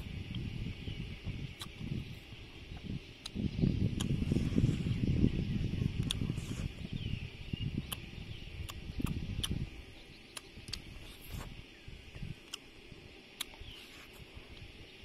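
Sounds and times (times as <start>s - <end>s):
person chewing: 8.6s - 9.6s, 10.3s - 11.6s, 12.4s - 12.6s, 13.3s - 14.6s.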